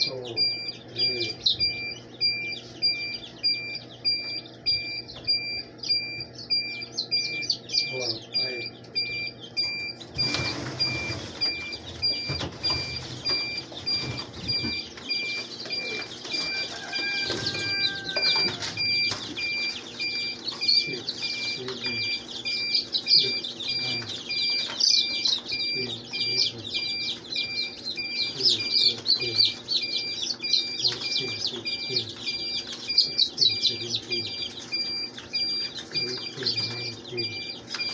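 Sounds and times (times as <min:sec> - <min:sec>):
chicks peeping: 0:00.0 - 0:37.9
faint electronic beep: 0:35.9 - 0:37.9.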